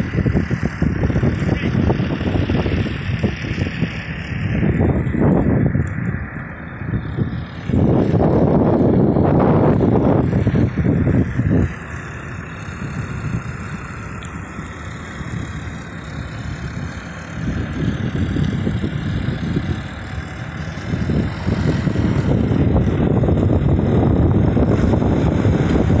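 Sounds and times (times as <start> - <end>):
tractor engine running: 0.0 - 26.0.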